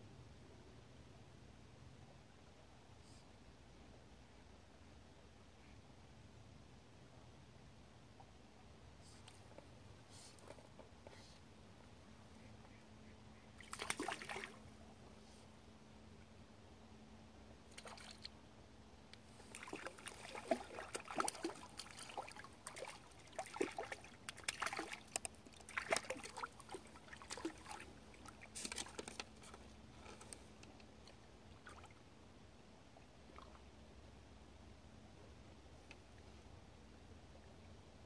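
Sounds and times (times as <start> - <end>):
fish splashing at water surface: 13.6 - 14.6, 19.5 - 29.2.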